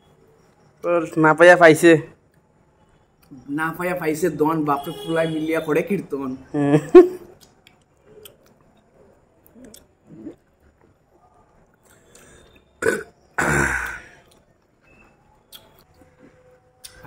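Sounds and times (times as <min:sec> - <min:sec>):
mouth sounds eating fruit: 0:09.4 - 0:10.9, 0:15.4 - 0:17.0
man burping: 0:12.8 - 0:14.2.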